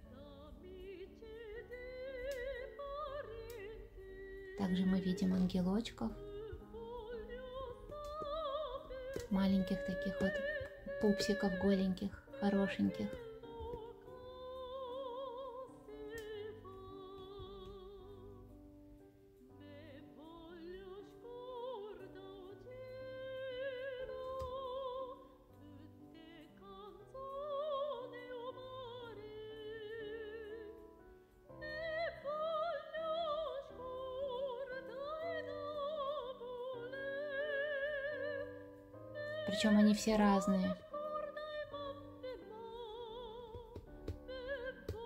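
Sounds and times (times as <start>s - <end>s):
operatic singing: 0.0s - 18.4s, 39.2s - 45.0s.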